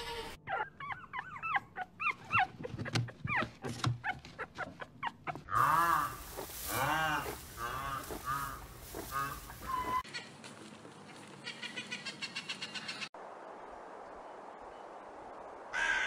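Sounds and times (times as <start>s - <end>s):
puppy whimpering and yipping: 0.5s - 5.5s
animal drawn-out calls: 1.8s - 10.3s.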